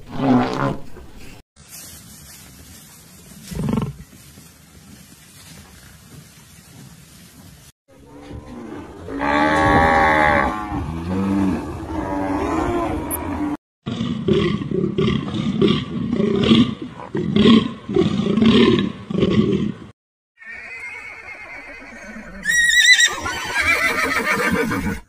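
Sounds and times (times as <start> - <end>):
cattle mooing: 8.0 - 13.6.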